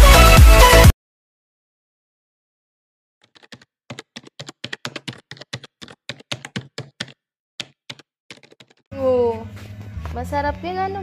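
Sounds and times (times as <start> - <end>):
keyboard typing clicks: 3.2 - 8.8.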